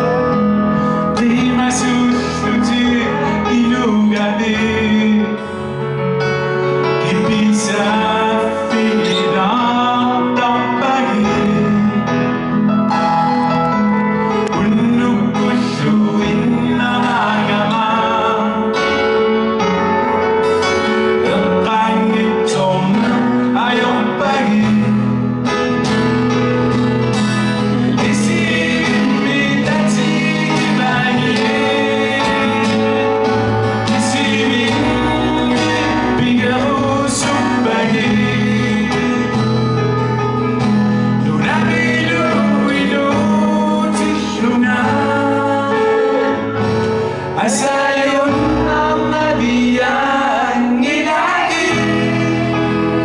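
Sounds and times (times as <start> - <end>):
man singing: 0.0 - 12.7, 14.1 - 26.4, 27.6 - 53.0
strummed acoustic guitar: 0.0 - 53.0.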